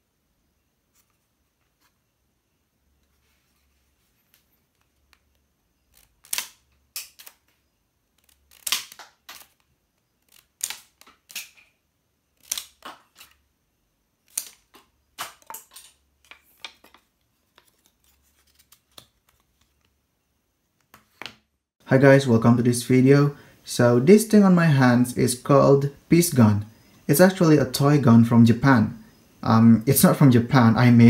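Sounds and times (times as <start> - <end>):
rubber-band gun snapping: 8.5 - 9.6.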